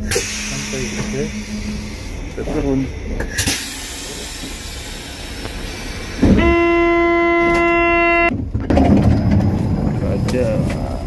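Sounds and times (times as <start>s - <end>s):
train rumble and hiss: 0.0s - 7.8s, 9.9s - 11.0s
train horn: 6.2s - 8.3s.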